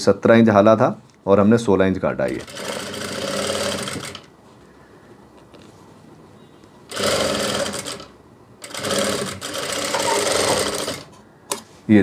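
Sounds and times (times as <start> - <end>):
sewing machine stitching: 2.4 - 4.3, 6.9 - 11.1.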